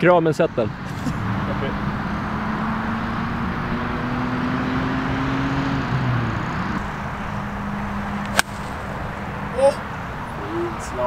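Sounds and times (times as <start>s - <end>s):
low engine hum: 0.0s - 11.0s
golf club striking ball: 7.5s - 9.2s.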